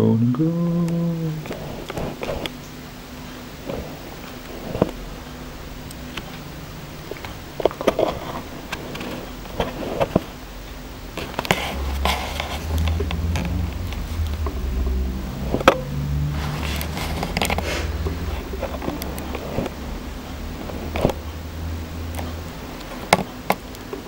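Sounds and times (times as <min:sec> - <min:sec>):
low rumble: 0:10.9 - 0:23.0.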